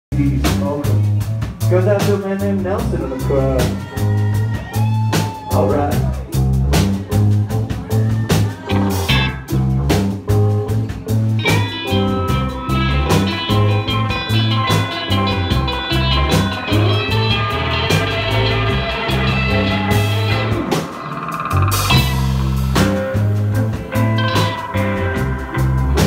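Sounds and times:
drum kit beat: 0:00.1 - 0:26.0
low bass notes: 0:00.1 - 0:26.0
higher guitar line: 0:00.2 - 0:26.0
electric guitar: 0:03.1 - 0:26.0.

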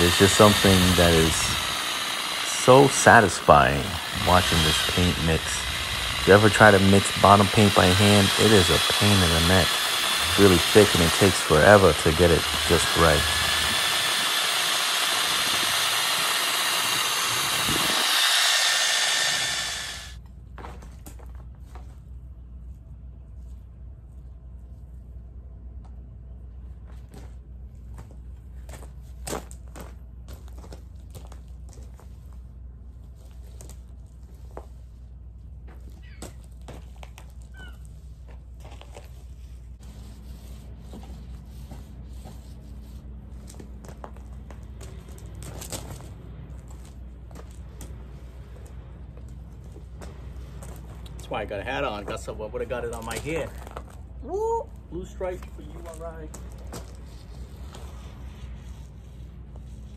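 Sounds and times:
paint roller scraping hull: 0:00.0 - 0:20.1, 0:38.7 - 0:43.1
cordless drill motor whine: 0:00.0 - 0:20.2.

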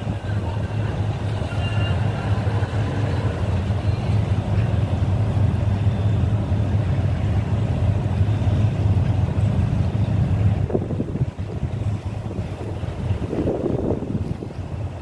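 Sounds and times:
boat engine droning: 0:00.0 - 0:15.0
water rushing: 0:00.0 - 0:15.0
wind rushing: 0:10.5 - 0:15.0.

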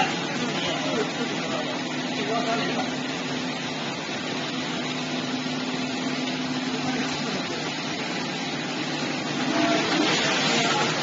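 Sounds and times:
liquid splashing into bucket: 0:09.2 - 0:11.0.

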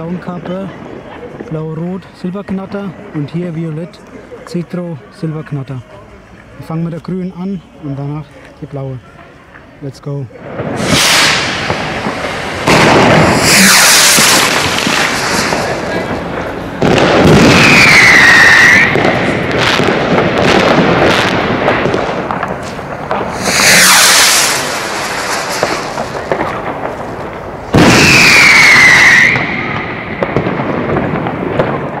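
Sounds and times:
fireworks crackling and popping: 0:00.0 - 0:32.0
rocket rushing with falling whistle: 0:10.8 - 0:16.1, 0:17.2 - 0:19.4, 0:23.2 - 0:26.2, 0:27.8 - 0:30.2.

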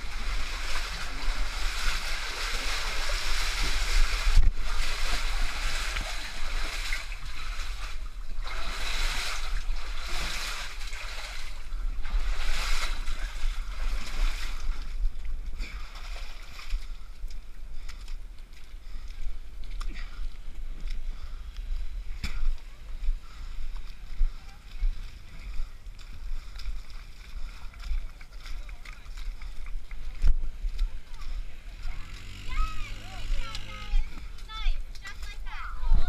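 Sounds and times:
low microphone rumble: 0:00.0 - 0:15.8
water splashing from wading: 0:00.0 - 0:36.0.

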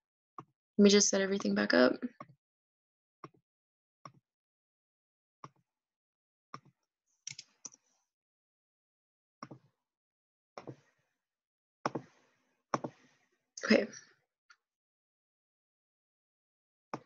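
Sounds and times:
mouse and keyboard clicks: 0:07.3 - 0:07.5.

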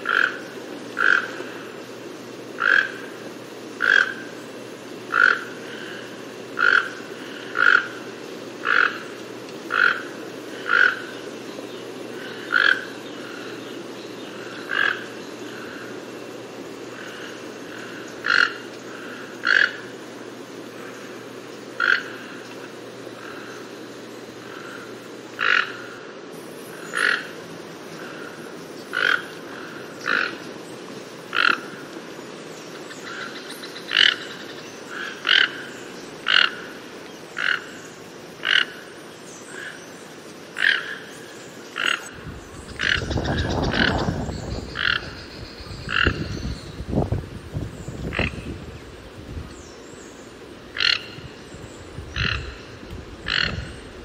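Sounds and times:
toucan calling: 0:00.0 - 0:01.4, 0:02.6 - 0:03.2, 0:03.8 - 0:04.4, 0:05.1 - 0:08.0, 0:08.6 - 0:11.3, 0:12.2 - 0:13.7, 0:16.9 - 0:19.9, 0:21.8 - 0:22.6, 0:41.7 - 0:46.7, 0:50.7 - 0:51.4, 0:52.1 - 0:54.0
toucan raspy calls: 0:00.0 - 0:01.8, 0:02.5 - 0:04.4, 0:05.1 - 0:11.4, 0:12.0 - 0:16.1, 0:16.9 - 0:20.0, 0:20.7 - 0:23.7, 0:24.4 - 0:26.0, 0:26.7 - 0:30.5, 0:31.3 - 0:31.8, 0:32.7 - 0:39.9, 0:40.5 - 0:46.7, 0:48.0 - 0:48.5, 0:50.7 - 0:54.0.

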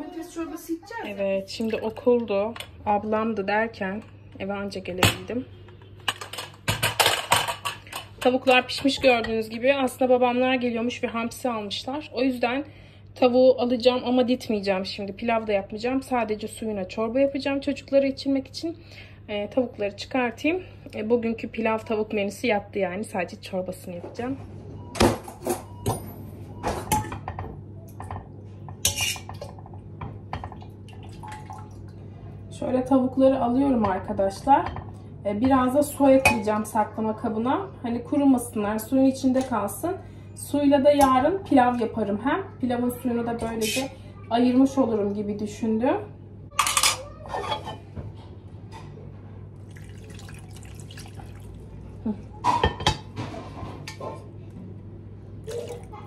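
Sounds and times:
metal utensil clinking on pot: 0:28.8 - 0:29.6
broth trickling into dish: 0:30.4 - 0:32.1, 0:49.6 - 0:52.1, 0:55.4 - 0:56.0.

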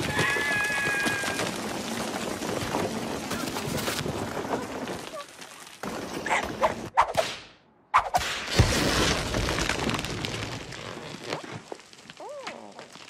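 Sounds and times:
rumbling crash: 0:08.2 - 0:10.9.

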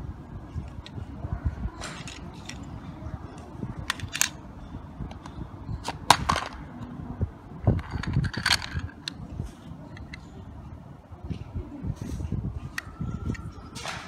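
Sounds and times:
toy car set on plastic track: 0:07.8 - 0:09.0.

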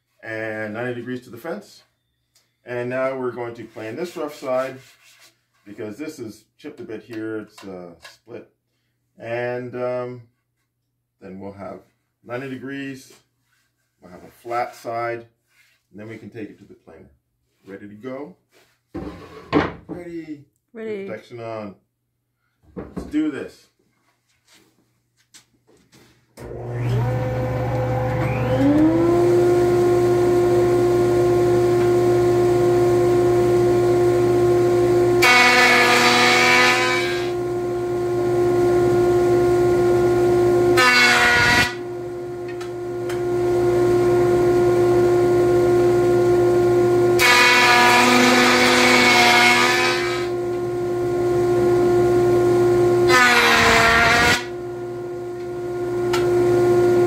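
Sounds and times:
jointer planing wood: 0:26.4 - 0:50.8, 0:52.9 - 0:54.5
jointer motor whine: 0:26.4 - 0:57.0.

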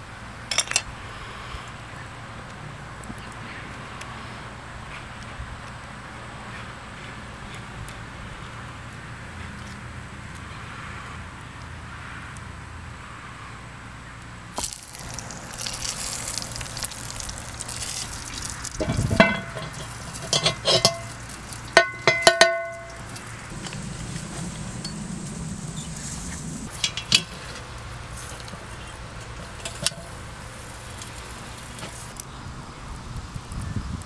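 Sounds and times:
pot hissing over hot coals: 0:14.5 - 0:34.0
metal lid clanking against pot: 0:18.8 - 0:23.2.

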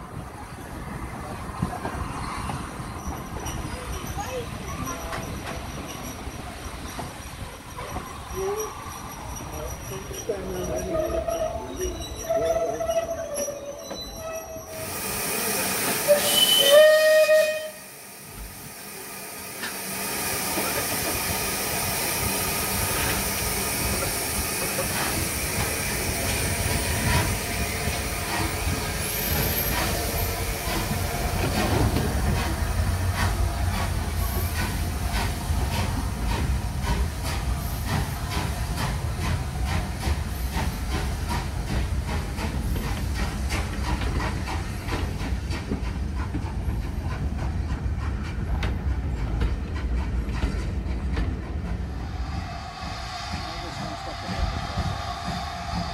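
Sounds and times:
steam locomotive whistle: 0:14.2 - 0:18.1
steam hissing: 0:14.6 - 0:55.9.

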